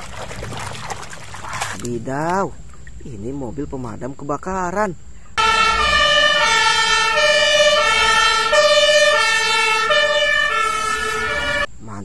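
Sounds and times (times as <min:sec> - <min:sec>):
fire engine two-tone siren: 0:05.4 - 0:11.7.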